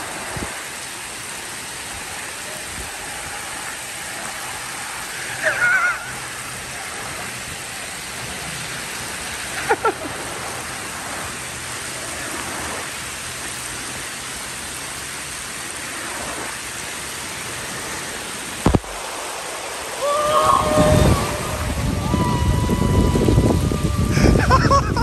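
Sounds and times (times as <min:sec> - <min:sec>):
heavy rain: 0:00.0 - 0:25.0
rainwater rushing down a gutter: 0:00.0 - 0:25.0.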